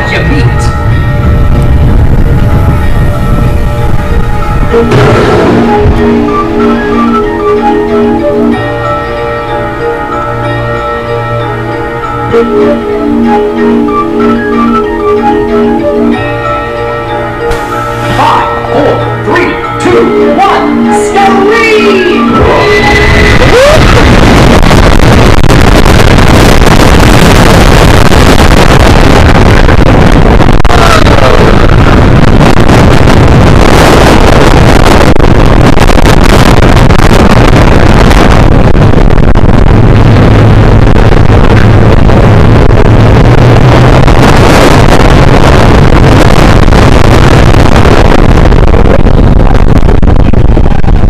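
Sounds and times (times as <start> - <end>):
wind blasting microphone: 0.0 - 8.8, 22.3 - 51.0
heavy low hum: 0.0 - 21.4, 22.2 - 51.0.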